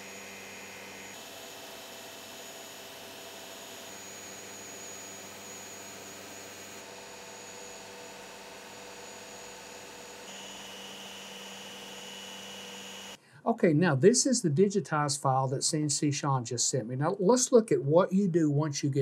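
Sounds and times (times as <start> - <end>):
machine hum and hiss: 0.0 - 13.2
whining tones: 10.3 - 13.2.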